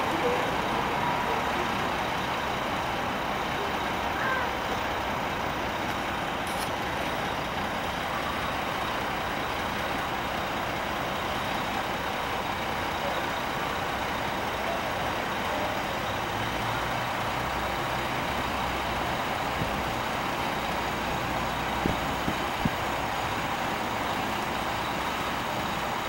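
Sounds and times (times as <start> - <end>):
truck diesel engine idling: 0.0 - 26.0.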